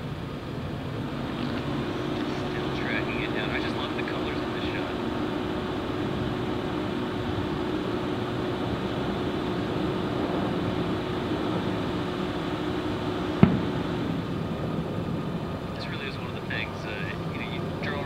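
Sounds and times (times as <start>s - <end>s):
outdoor background hum: 0.0s - 18.0s
sharp bang: 13.4s - 13.8s.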